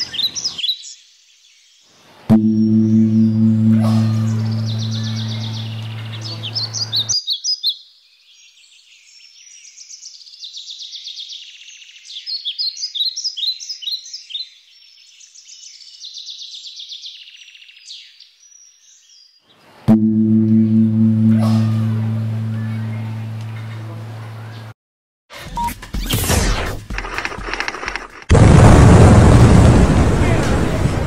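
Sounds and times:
small birds chirping: 0:00.0 - 0:02.0, 0:04.2 - 0:19.7
deep metallic ringing tone: 0:02.3 - 0:06.8, 0:19.9 - 0:24.2.

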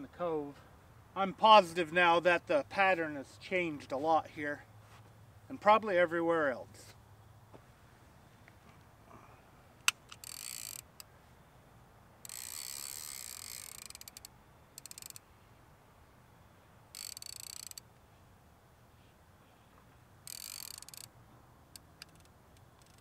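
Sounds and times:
fishing reel ratcheting: 0:09.9 - 0:11.1, 0:12.2 - 0:15.3, 0:16.9 - 0:17.9, 0:20.2 - 0:21.1, 0:21.7 - 0:23.0.

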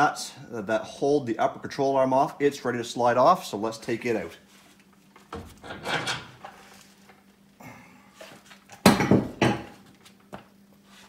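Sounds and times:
metal clanks and scraping: 0:05.6 - 0:06.8.

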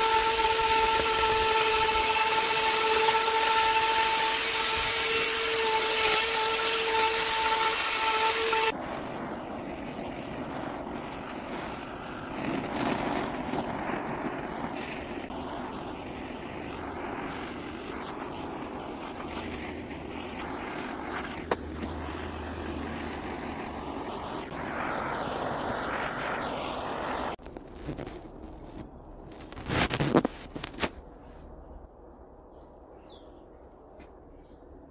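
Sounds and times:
power carving tool grinding wood: 0:00.0 - 0:08.7.

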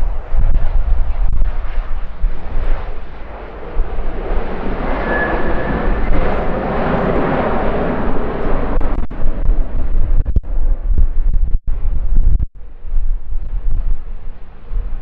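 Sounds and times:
airplane engine passing: 0:00.0 - 0:10.8, 0:12.6 - 0:15.0
wind buffeting microphone: 0:00.0 - 0:15.0
high whistle: 0:04.9 - 0:06.2.

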